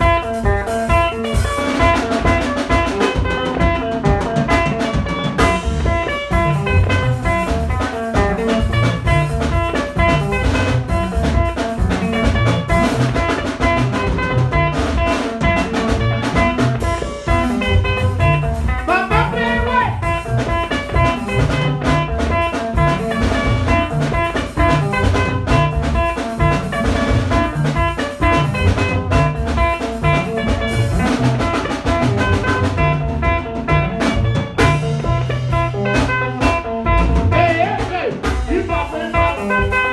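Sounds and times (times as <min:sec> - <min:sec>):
electric guitar band music: 0:00.0 - 0:39.9
low drum beat: 0:00.0 - 0:39.9
man singing into microphone: 0:18.9 - 0:20.0, 0:37.3 - 0:39.5.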